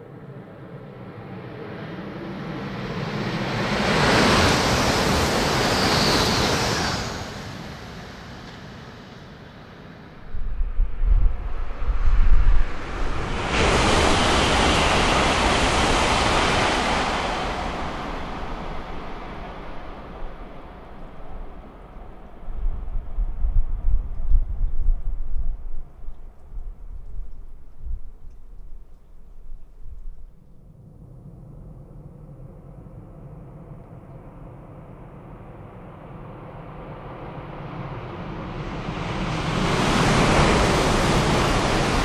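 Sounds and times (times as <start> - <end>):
high-speed train passing: 1.6 - 23.6, 37.0 - 42.0.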